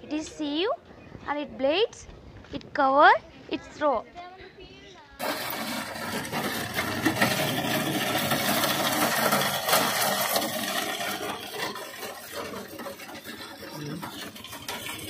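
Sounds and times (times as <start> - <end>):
groundnut sheller rattling: 5.2 - 15.0.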